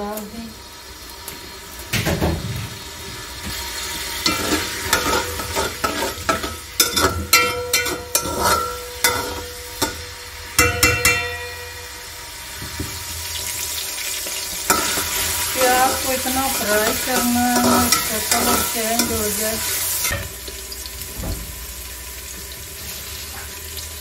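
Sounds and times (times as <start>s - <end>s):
onions sizzling in oil: 0.0s - 24.0s
metal spoon scraping a pot: 4.2s - 10.0s, 14.7s - 20.3s.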